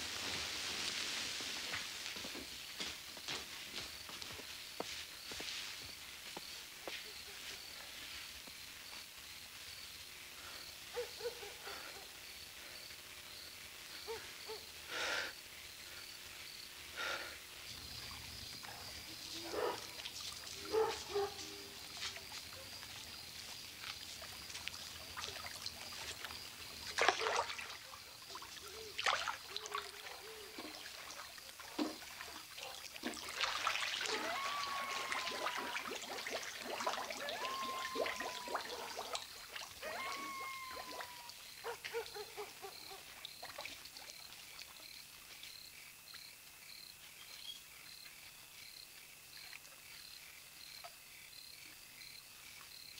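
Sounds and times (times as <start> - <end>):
crickets chirring: 0.0 - 52.9
pool water splashing: 17.9 - 41.4
whistled calls: 37.2 - 41.3.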